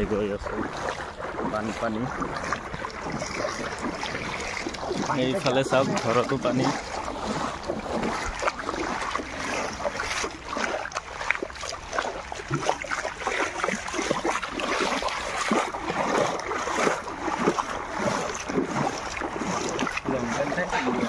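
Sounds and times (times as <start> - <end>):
shallow water splashing: 0.0 - 21.0.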